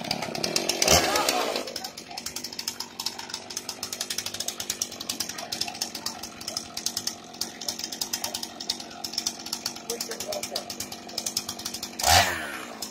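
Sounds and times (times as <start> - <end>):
chainsaw idling: 0.0 - 12.9.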